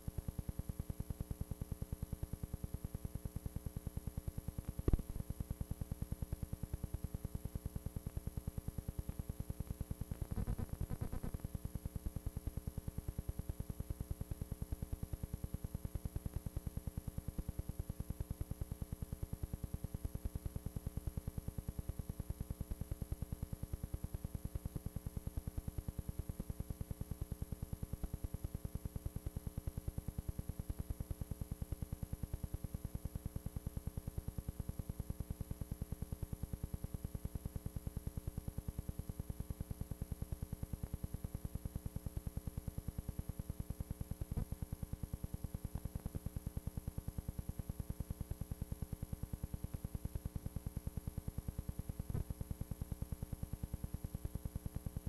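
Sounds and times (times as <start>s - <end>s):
fast-pulsing buzz with hum: 0.0s - 55.0s
noisy crackle: 4.7s - 5.4s, 10.0s - 11.5s.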